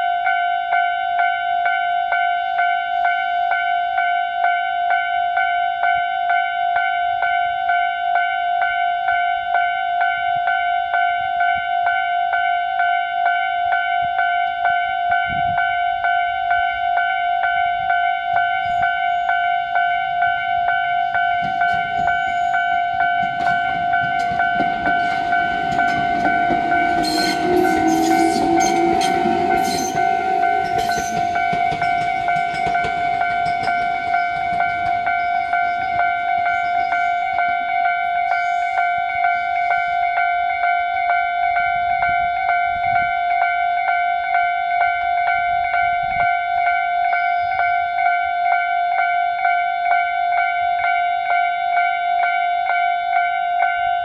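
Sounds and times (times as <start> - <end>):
level crossing bell ringing: 0.0 - 54.0
train wheels clattering: 21.2 - 37.7.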